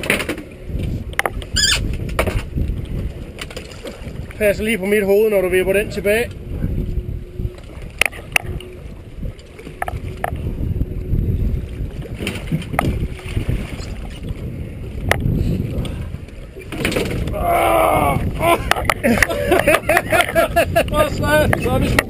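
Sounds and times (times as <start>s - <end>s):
water around boat: 0.0s - 22.0s
wind: 0.0s - 22.0s.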